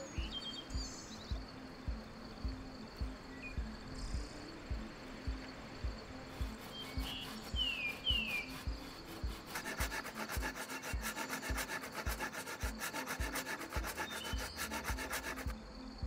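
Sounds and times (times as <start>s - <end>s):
background music with low beat: 0.0s - 16.0s
saw rasping through log: 6.3s - 15.5s.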